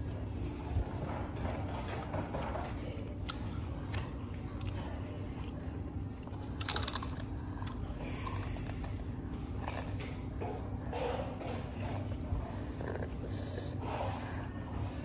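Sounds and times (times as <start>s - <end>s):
low room hum: 0.0s - 15.0s
child crunching chips: 6.6s - 9.9s.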